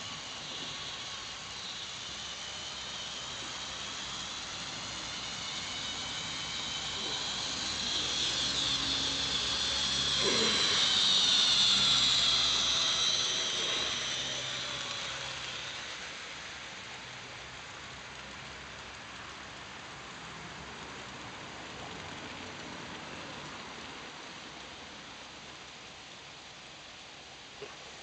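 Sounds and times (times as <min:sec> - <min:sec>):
model train motor whine: 0:00.0 - 0:19.8.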